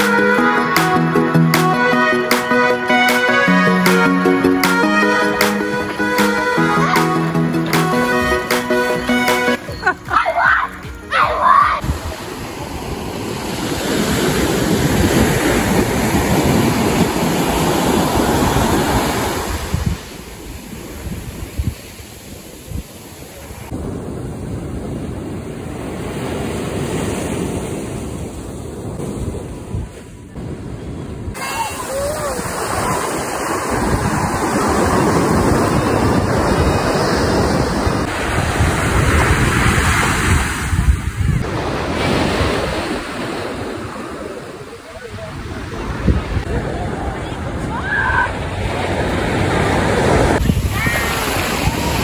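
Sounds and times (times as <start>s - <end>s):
surf breaking on beach: 11.4s - 52.0s
wind buffeting microphone: 11.8s - 52.0s.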